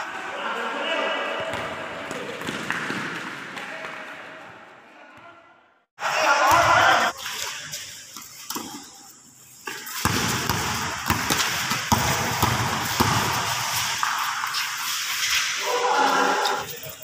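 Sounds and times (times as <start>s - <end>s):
basketball bouncing on concrete: 1.4s - 3.5s, 9.7s - 14.1s.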